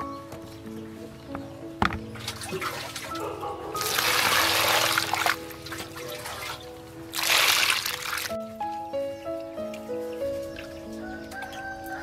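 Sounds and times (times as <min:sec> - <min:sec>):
background music: 0:00.0 - 0:12.0
water pouring into plastic basin: 0:02.2 - 0:03.2, 0:03.8 - 0:08.4.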